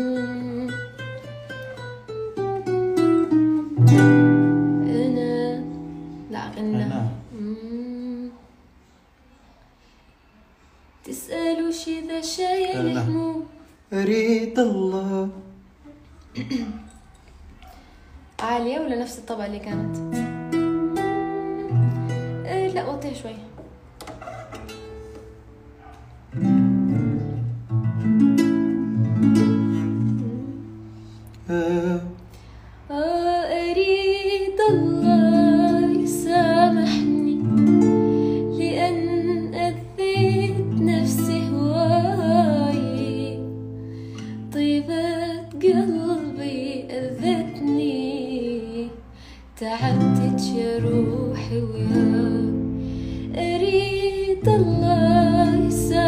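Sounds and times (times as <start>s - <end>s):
woman singing with vibrato: 0.0s - 1.3s, 4.3s - 8.8s, 11.0s - 14.4s, 19.7s - 23.6s, 29.6s - 56.0s
acoustic guitar strumming: 0.0s - 7.4s, 19.4s - 32.5s, 33.5s - 56.0s.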